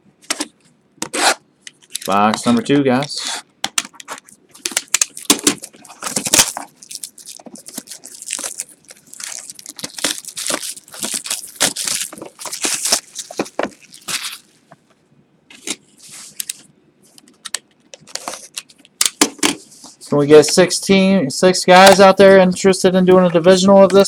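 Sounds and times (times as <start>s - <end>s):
wrapping crackling and tearing: 3.9s - 14.7s.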